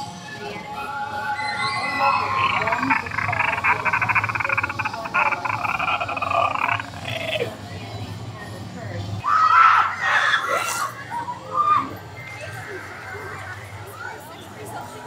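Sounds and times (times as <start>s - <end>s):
gliding vocal sounds: 1.3s - 7.8s
person growling with rattling rasp: 2.3s - 7.6s.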